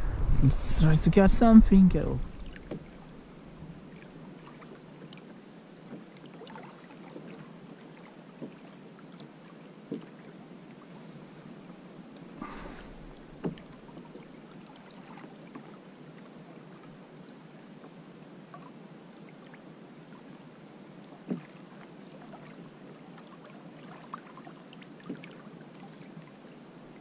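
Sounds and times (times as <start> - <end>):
water lapping against hull: 1.4 - 27.0
sharp knocks on boat: 2.5 - 2.9, 8.4 - 8.6, 9.9 - 10.1, 12.4 - 13.7, 21.2 - 21.5.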